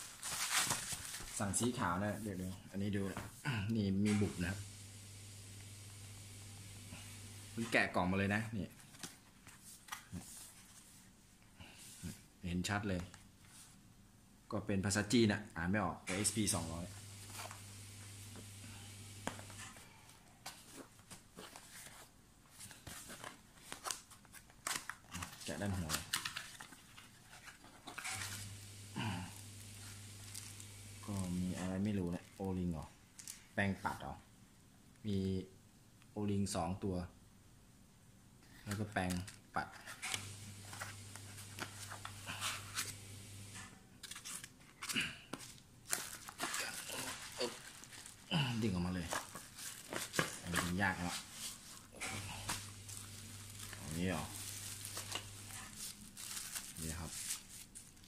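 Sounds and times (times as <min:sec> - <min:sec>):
low steady hum: 0:28.0 - 0:31.6, 0:51.2 - 0:56.7
cardboard box handling: 0:49.0 - 0:53.8.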